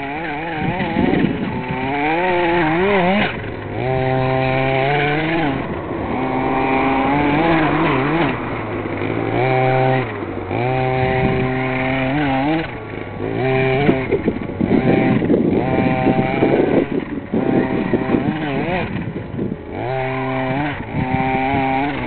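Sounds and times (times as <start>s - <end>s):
rc car engine revving: 0.0s - 22.0s.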